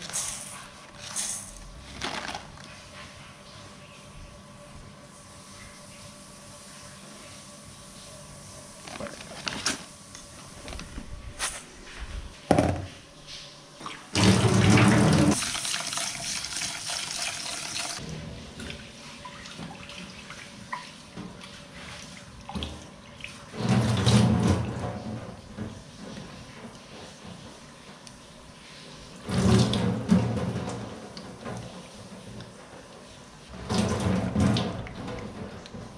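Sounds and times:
water splashing into sink: 0:13.8 - 0:25.1
tap water running into pot: 0:14.2 - 0:18.0.

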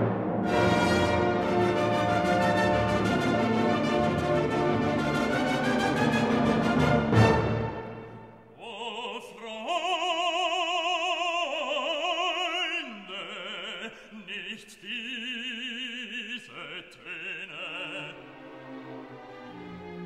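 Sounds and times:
operatic singing with vibrato: 0:06.0 - 0:19.7.

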